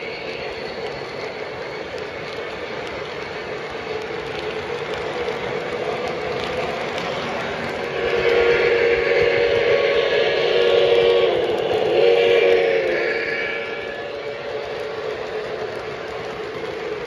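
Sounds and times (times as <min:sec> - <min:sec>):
model train wheels rumbling on rail: 0:00.0 - 0:17.0.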